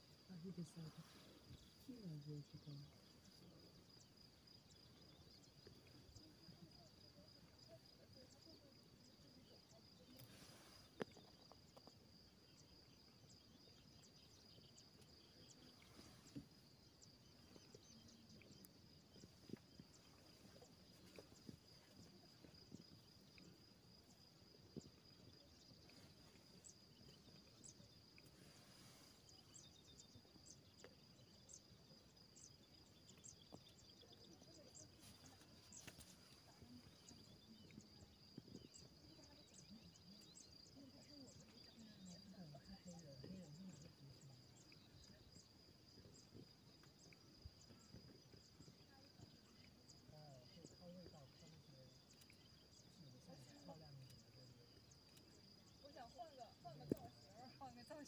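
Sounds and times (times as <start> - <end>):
insects chirring: 0.0 - 58.0
faint clicks: 34.7 - 38.9.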